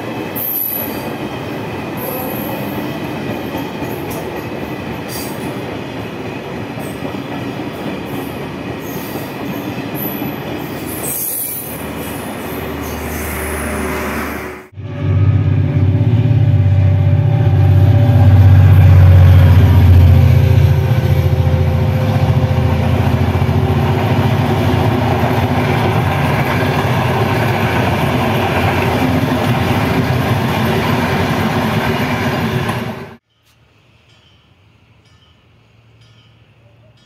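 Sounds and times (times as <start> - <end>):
train wheels on rails: 0.0 - 37.0
diesel locomotive rumble: 11.8 - 33.2.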